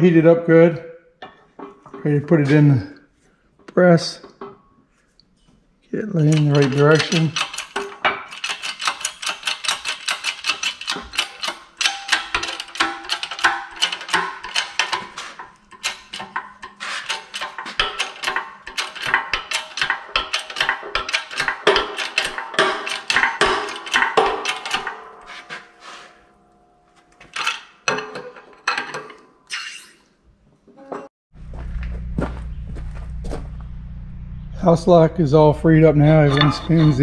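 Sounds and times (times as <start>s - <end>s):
wrench clicking and clanking on lock: 6.1s - 25.6s, 27.2s - 29.2s.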